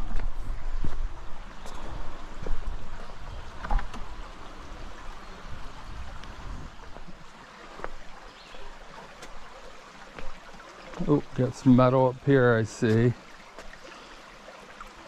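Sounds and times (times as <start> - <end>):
footsteps on rock: 0.0 - 4.2, 10.1 - 11.1
creek water rushing over rock: 0.0 - 15.0.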